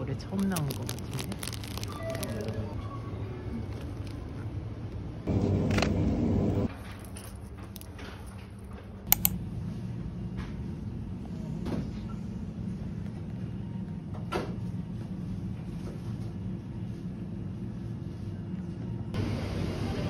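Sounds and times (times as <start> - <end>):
sharp click: 9.1 - 9.4.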